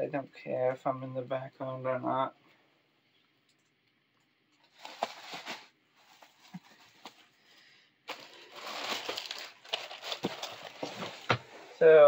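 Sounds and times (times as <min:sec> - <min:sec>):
plastic bags crinkling: 0:04.6 - 0:07.3, 0:08.1 - 0:11.4.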